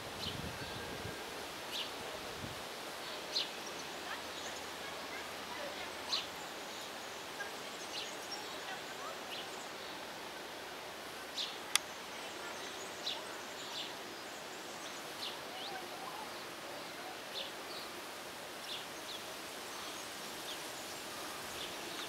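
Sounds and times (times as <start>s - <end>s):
steady background hiss: 0.0s - 22.0s.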